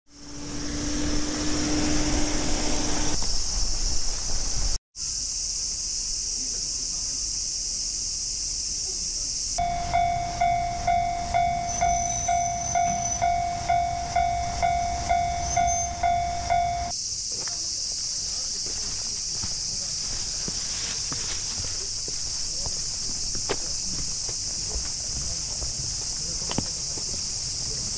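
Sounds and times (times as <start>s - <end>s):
cicadas droning: 0.1s - 27.9s
low hum: 9.6s - 16.9s
level-crossing warning bell: 9.6s - 17.0s.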